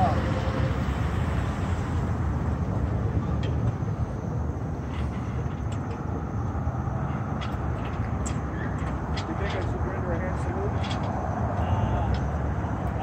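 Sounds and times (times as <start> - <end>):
traffic rumble: 0.0 - 13.0
wind: 0.0 - 13.0.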